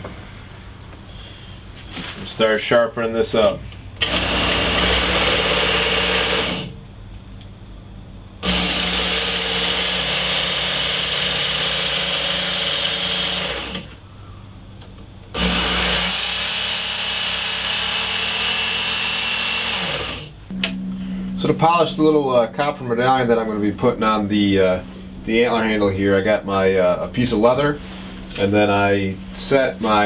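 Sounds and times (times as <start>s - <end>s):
belt sharpener grinding blade: 8.4s - 13.9s, 15.4s - 20.3s.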